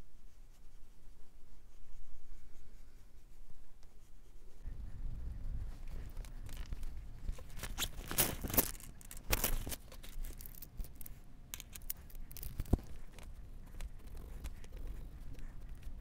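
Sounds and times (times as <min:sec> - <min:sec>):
drawing materials rustling: 0:02.4 - 0:16.0
rough rasps: 0:05.5 - 0:16.0.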